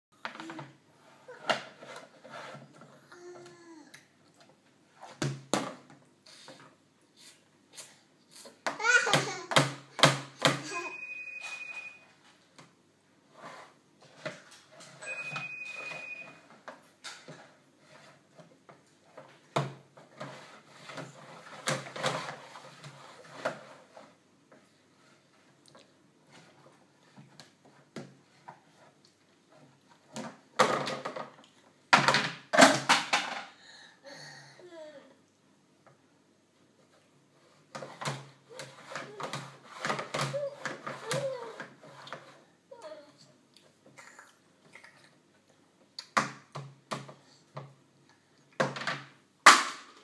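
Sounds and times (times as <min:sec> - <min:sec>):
plastic plates banging on trays: 0:31.9 - 0:33.5.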